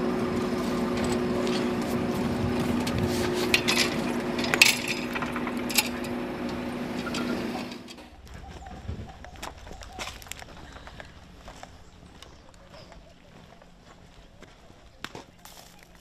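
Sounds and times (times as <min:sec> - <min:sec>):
steady low hum: 0:00.0 - 0:16.0
metal rods clinking: 0:03.2 - 0:08.2.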